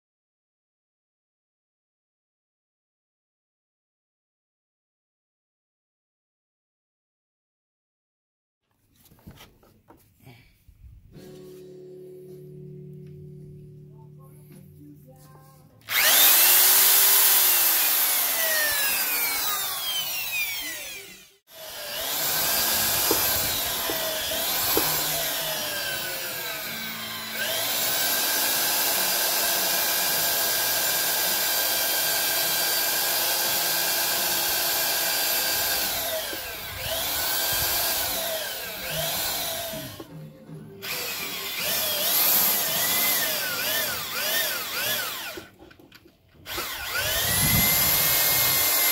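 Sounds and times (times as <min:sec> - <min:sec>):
drill boring through wood: 0:15.8 - 0:40.1, 0:40.8 - 0:45.6, 0:46.4 - 0:48.9.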